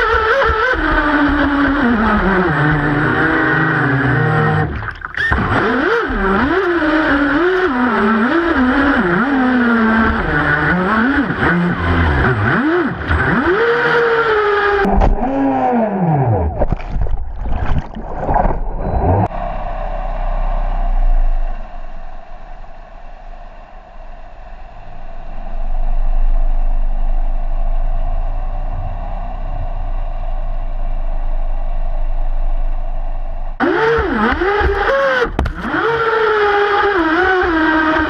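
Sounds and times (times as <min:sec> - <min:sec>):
water rushing against hull: 0:00.0 - 0:12.1, 0:16.4 - 0:32.5
rc speedboat motor: 0:00.0 - 0:16.6, 0:33.6 - 0:38.0.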